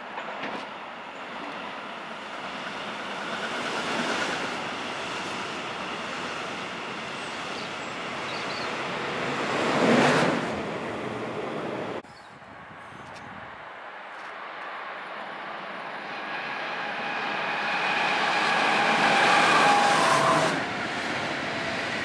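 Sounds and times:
train wheels on rails: 0.0 - 12.0, 14.1 - 22.0.

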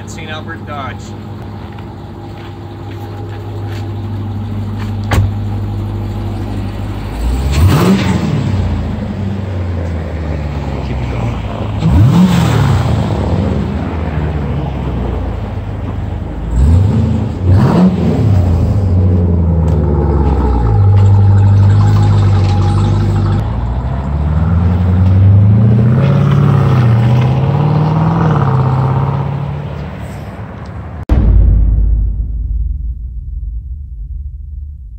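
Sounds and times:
car pulling away: 0.0 - 30.5
car engine revving: 5.5 - 9.3, 10.6 - 14.2, 16.4 - 29.6.

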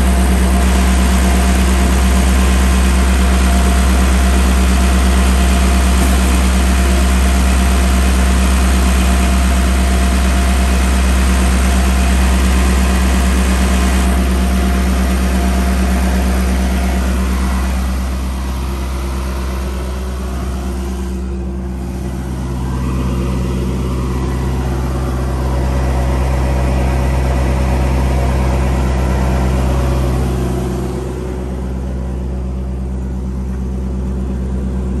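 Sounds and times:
diesel engine idling: 0.0 - 35.0.

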